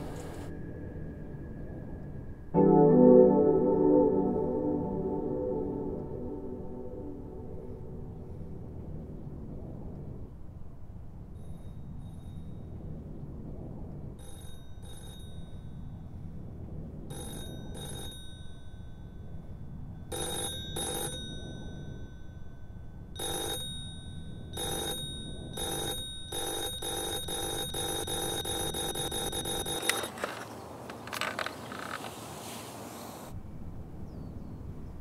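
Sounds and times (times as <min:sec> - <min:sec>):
low rumble: 0:00.0 - 0:14.8
telephone ringing electronically: 0:14.2 - 0:15.8, 0:17.1 - 0:30.4.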